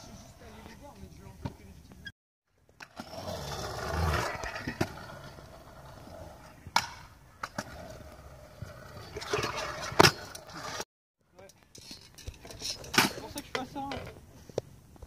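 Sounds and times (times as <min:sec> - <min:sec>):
scooter wheels rolling on concrete: 0:00.0 - 0:15.0
scooter clacking on concrete: 0:11.4 - 0:14.2.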